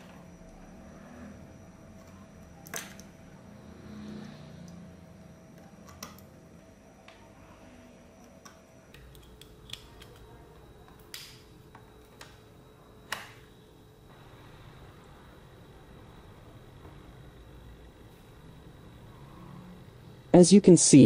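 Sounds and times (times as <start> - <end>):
cables clicking and tapping: 8.2 - 12.4.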